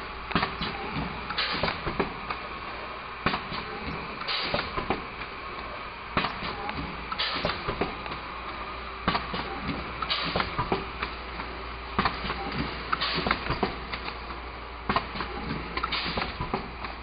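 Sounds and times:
mechanical clacks and knocks: 0.3s - 2.4s, 6.2s - 8.2s, 9.0s - 14.2s, 14.9s - 17.0s.

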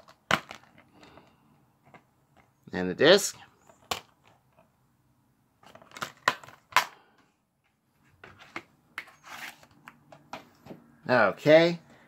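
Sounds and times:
plastic cases clicking and rattling: 0.0s - 2.5s, 3.6s - 4.7s, 5.6s - 8.7s
plastic case snapping shut: 5.8s - 7.0s.

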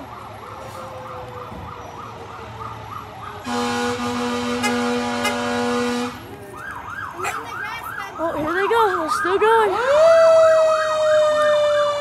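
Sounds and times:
fire engine siren yelping: 0.0s - 12.0s
fire truck horn blast: 3.4s - 6.3s.

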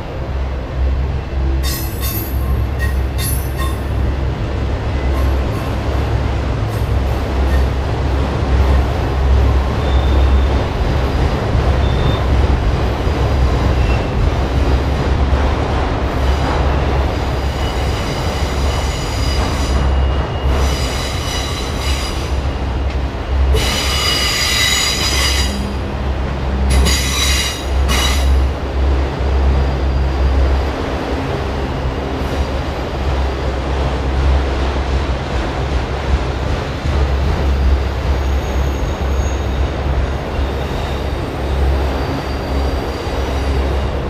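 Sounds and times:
steel wheels rumbling on rail: 0.0s - 44.0s.

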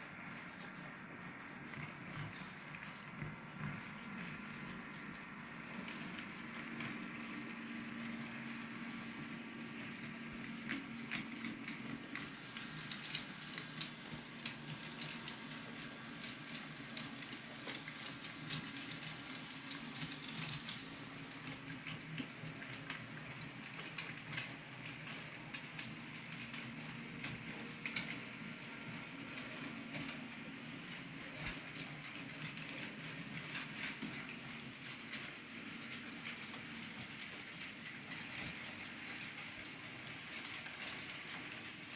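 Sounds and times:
wheels clicking over rail joints: 8.1s - 41.9s
model train motor hum: 10.8s - 41.9s.

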